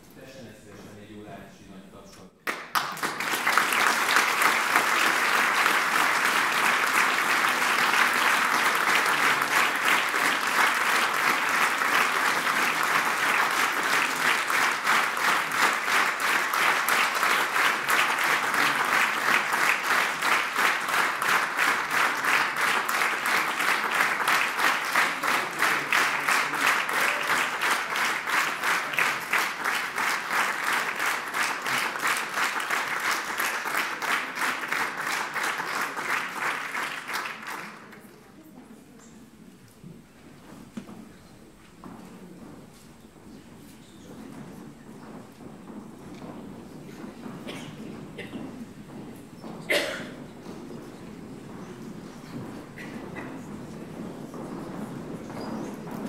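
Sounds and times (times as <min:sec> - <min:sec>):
audience applauding: 0:02.4 - 0:38.2
clapping in unison: 0:02.4 - 0:38.2.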